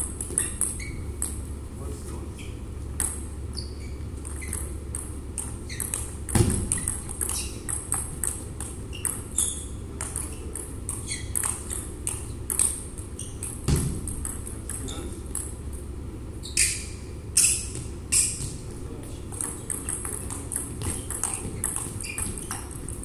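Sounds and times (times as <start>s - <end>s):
steady low hum: 0.0s - 23.0s
table tennis ball clicking: 0.2s - 1.4s, 3.0s - 3.3s, 4.2s - 15.6s, 19.3s - 23.0s.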